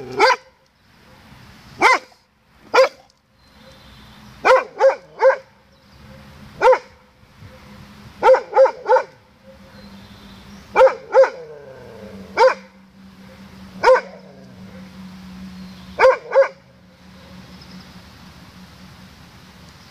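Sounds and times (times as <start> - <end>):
dog barking: 0.2 - 0.5, 1.1 - 3.0, 4.4 - 5.5, 6.1 - 9.7, 10.8 - 11.5, 12.4 - 12.8, 13.8 - 14.9, 16.0 - 16.6.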